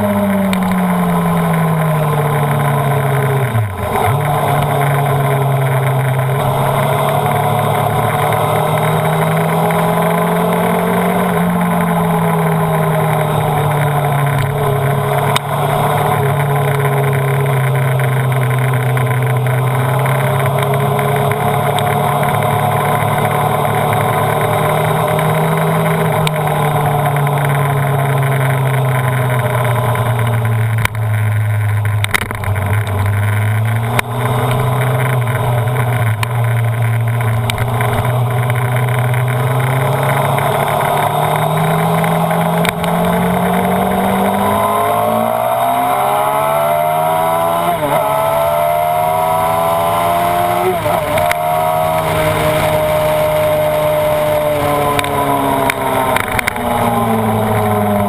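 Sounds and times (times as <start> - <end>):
motorcycle engine at speed: 0.0 - 58.0.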